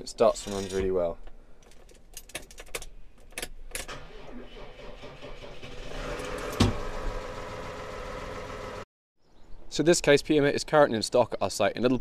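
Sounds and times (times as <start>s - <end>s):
key rattle and clicks: 1.6s - 3.9s
diesel engine starting and running: 3.9s - 8.9s.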